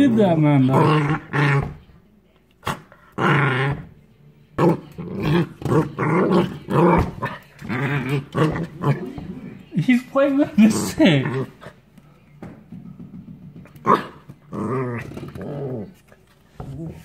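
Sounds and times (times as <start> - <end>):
puppy play growling: 0.0 - 1.8, 2.6 - 4.0, 4.6 - 9.7, 10.4 - 11.9, 13.6 - 17.0.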